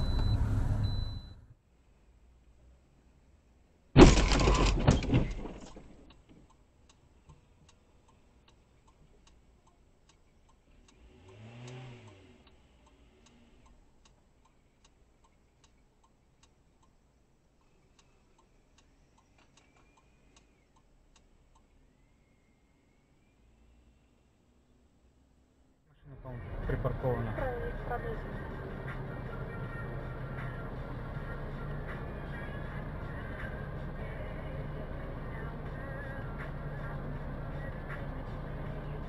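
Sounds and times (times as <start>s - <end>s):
car crash impact: 4.0s - 6.1s
faint regular ticking: 6.1s - 21.8s.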